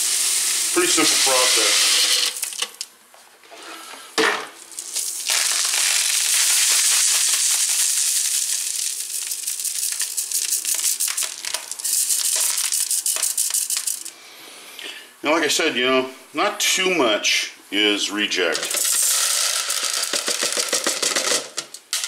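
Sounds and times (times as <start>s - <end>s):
shot pellets rattling in wire sieve: 0.6s - 2.7s, 4.8s - 14.1s, 18.5s - 22.0s.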